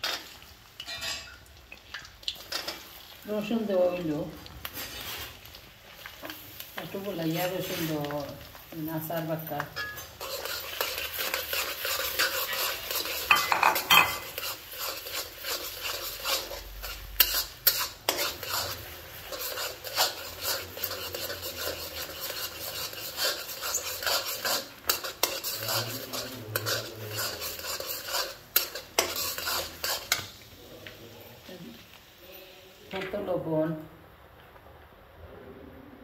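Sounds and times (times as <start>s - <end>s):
spatula scraping metal pan: 0.0s - 1.3s, 9.5s - 30.4s
garlic sizzling in oil: 0.0s - 34.9s.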